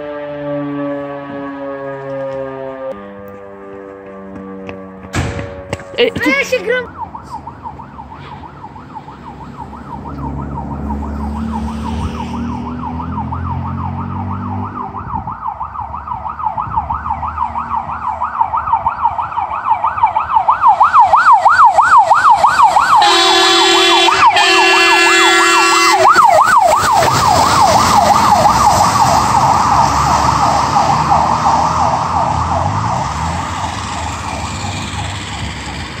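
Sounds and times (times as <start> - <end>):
fire engine horn blasts: 0.0 - 7.4, 22.6 - 27.2
fire engine siren yelping: 0.0 - 36.0.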